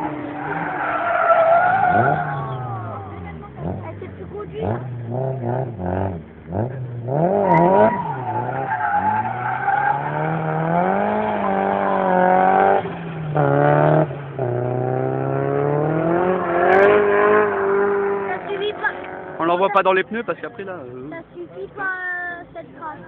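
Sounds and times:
car engine at high revs: 0.0 - 20.0
tyres squealing: 0.2 - 3.2, 7.4 - 10.4.

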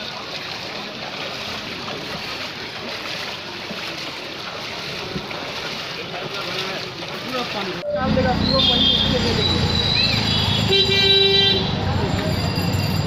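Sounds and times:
floodwater sloshing under bicycle wheels: 0.0 - 13.0.

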